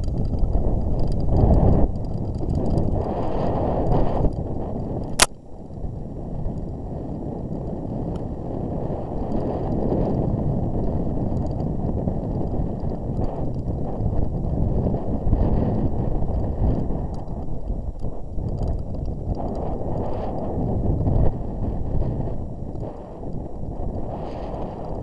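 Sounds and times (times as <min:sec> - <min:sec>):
camera rumbling and rattling: 0:00.0 - 0:05.8, 0:09.0 - 0:25.0
wind buffeting microphone: 0:00.0 - 0:25.0.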